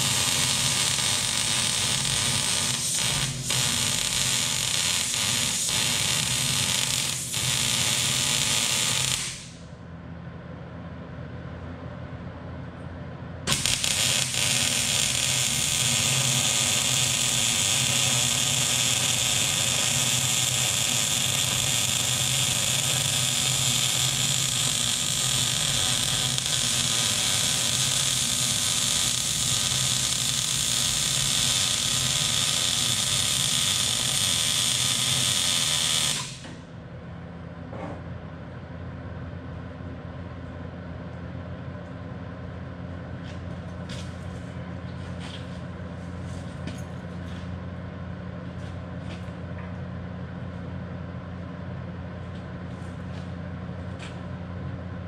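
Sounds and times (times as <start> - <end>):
welding arc sizzling: 0.0 - 9.7, 13.5 - 36.7.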